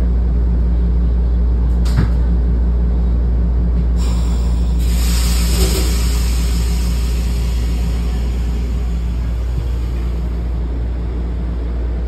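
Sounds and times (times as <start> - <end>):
train rumbling inside coach: 0.0 - 12.0
hiss: 4.0 - 10.3.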